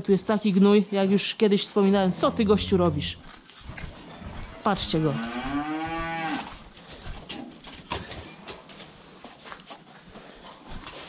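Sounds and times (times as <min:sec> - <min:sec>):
bull mooing: 0:02.0 - 0:03.3, 0:04.4 - 0:06.5.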